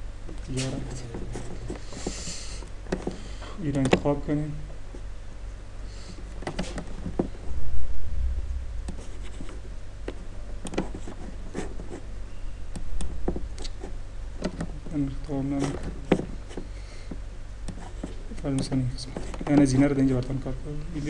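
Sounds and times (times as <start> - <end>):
low electrical hum: 0.0 - 21.0
low bump: 7.3 - 9.2
computer mouse clicking: 10.6 - 11.0.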